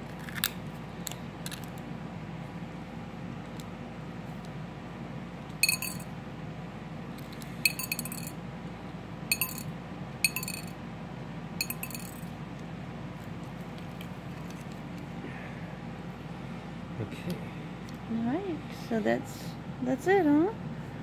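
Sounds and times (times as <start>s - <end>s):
steady low hum: 0.0s - 21.0s
oyster shells clinking on ceramic: 5.6s - 6.1s, 7.7s - 8.3s, 9.3s - 9.7s, 10.3s - 10.7s, 11.6s - 12.3s.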